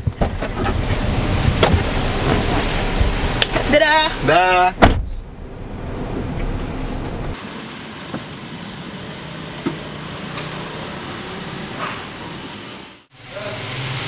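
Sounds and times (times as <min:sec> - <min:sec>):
car engine hum from inside: 0:00.4 - 0:07.5.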